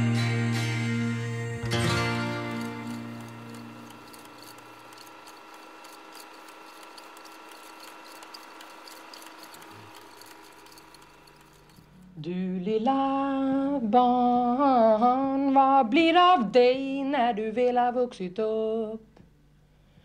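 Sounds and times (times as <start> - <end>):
guitar music: 0.0 - 4.1
crackling and clicking surface noise: 2.4 - 12.1.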